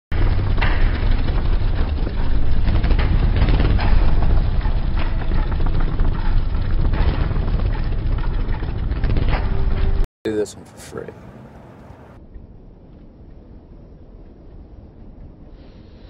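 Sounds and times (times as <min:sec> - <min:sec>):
road and wind noise: 0:00.1 - 0:16.0
motorcycle engines rumbling: 0:00.2 - 0:12.2.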